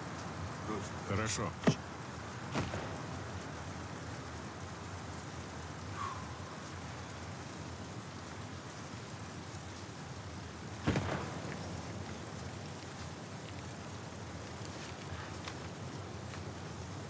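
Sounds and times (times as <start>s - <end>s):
outdoor hiss: 0.0s - 17.0s.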